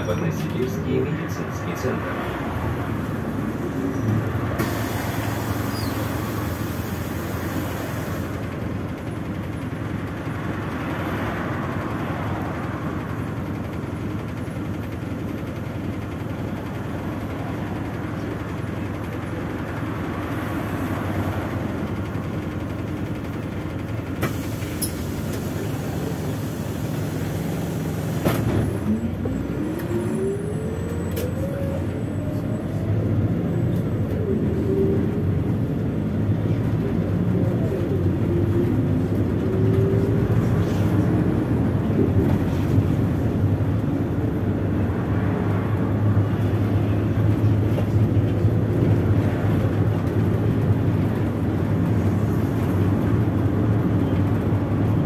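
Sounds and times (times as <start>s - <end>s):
bus engine and road noise: 0.0s - 55.0s
hiss: 4.6s - 8.3s.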